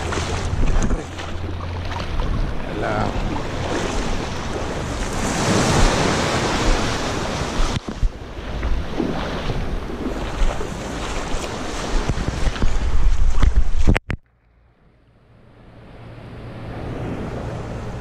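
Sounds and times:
small waves washing over rocks: 0:00.0 - 0:13.3
wind on microphone: 0:00.0 - 0:14.2.

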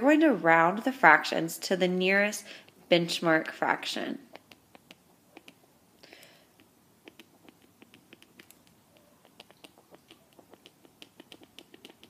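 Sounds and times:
stylus tapping on tablet screen: 0:04.3 - 0:05.6, 0:06.2 - 0:12.0.

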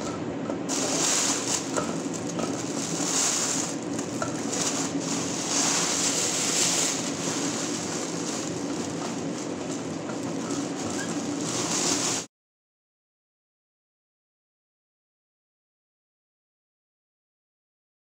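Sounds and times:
steady low hum: 0:00.0 - 0:12.2
plastic bag rustling and crinkling: 0:00.7 - 0:12.3.

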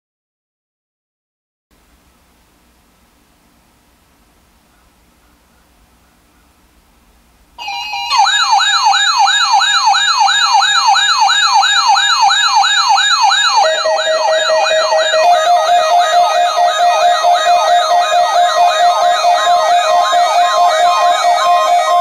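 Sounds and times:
rising siren warble: 0:07.6 - 0:22.0
steady alarm tone: 0:07.6 - 0:22.0
steady beeping tones: 0:07.6 - 0:22.0.

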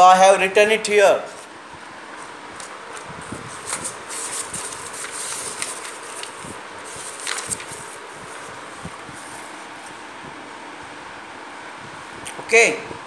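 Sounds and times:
notebook pages rustling: 0:02.1 - 0:10.0.

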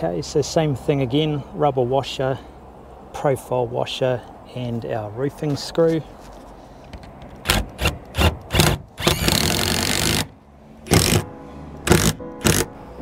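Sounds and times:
cordless drill driving screw: 0:07.4 - 0:10.3, 0:10.9 - 0:12.7.

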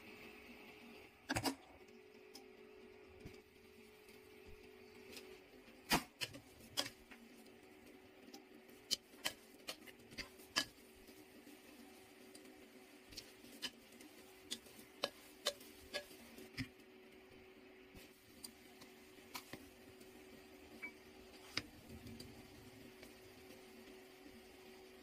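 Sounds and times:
rice paddle scraping a pot: 0:08.9 - 0:12.5, 0:13.1 - 0:16.7.

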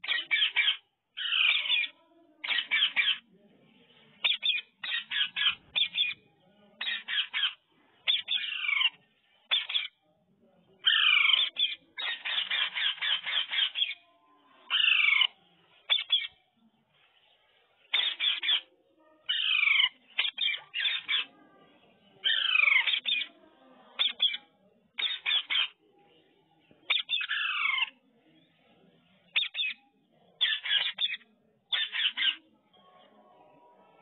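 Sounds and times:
parakeets squawking: 0:00.0 - 0:03.2, 0:04.2 - 0:06.2, 0:06.8 - 0:10.0, 0:10.8 - 0:14.0, 0:14.7 - 0:15.3, 0:15.9 - 0:16.4, 0:17.9 - 0:21.3, 0:22.2 - 0:23.3, 0:24.0 - 0:25.8, 0:26.9 - 0:27.9, 0:29.4 - 0:29.8, 0:30.4 - 0:32.4
parakeets chirping: 0:00.0 - 0:03.3, 0:04.2 - 0:10.0, 0:10.8 - 0:16.4, 0:17.8 - 0:21.4, 0:22.2 - 0:25.8, 0:26.9 - 0:27.9, 0:29.3 - 0:29.8, 0:30.4 - 0:32.4.

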